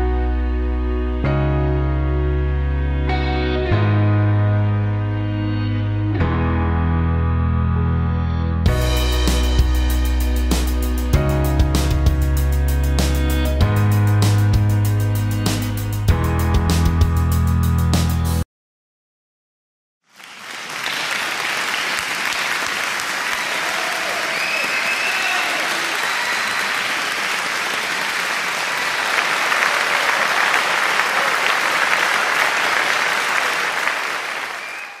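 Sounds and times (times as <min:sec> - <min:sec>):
crowd applauding: 0:20.1 - 0:35.0.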